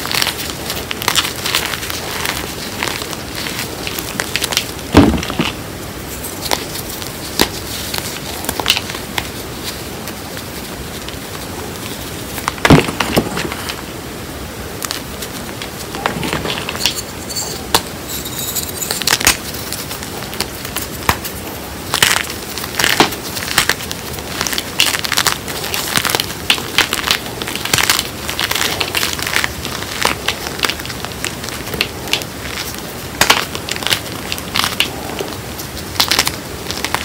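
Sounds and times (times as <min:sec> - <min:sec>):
hands crushing chalk chunks: 0:00.0 - 0:05.6, 0:06.2 - 0:13.8, 0:17.6 - 0:37.0.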